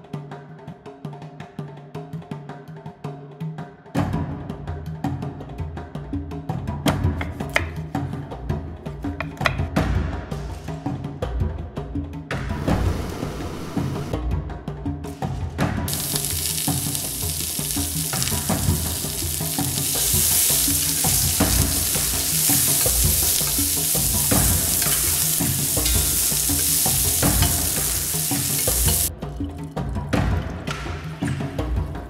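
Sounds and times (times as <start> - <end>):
background music with bass line: 13.8 - 32.0
food sizzling in oil: 15.9 - 29.1.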